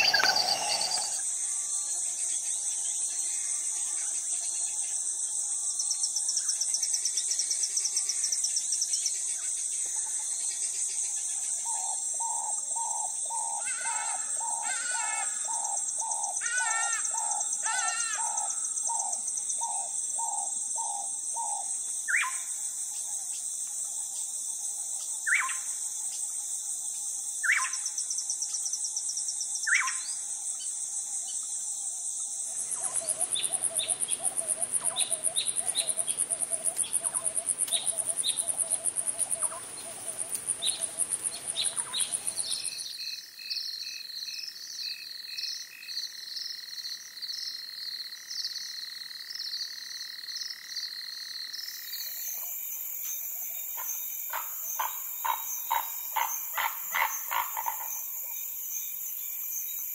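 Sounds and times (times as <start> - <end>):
loud bird call: 0.0 - 1.2
rapid pulsing calls: 0.0 - 1.2
rhythmic chirping calls: 0.0 - 1.3, 32.6 - 43.2, 53.8 - 58.1
high insect drone: 0.0 - 59.9.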